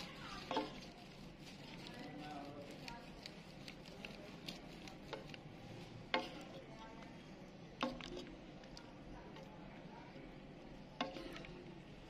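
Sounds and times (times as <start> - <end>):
utensils clinking against wok: 0.1 - 1.3.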